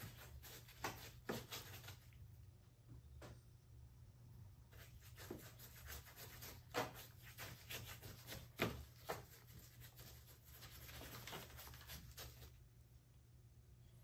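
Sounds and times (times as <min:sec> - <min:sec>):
brush taps: 0:00.0 - 0:02.1, 0:04.8 - 0:12.5
paint brush scrubbing plaster: 0:00.0 - 0:02.2, 0:04.7 - 0:12.6.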